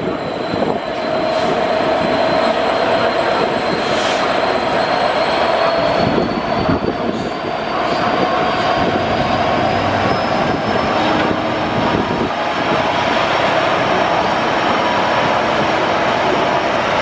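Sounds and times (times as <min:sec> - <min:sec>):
diesel locomotive engine: 0:00.0 - 0:17.0.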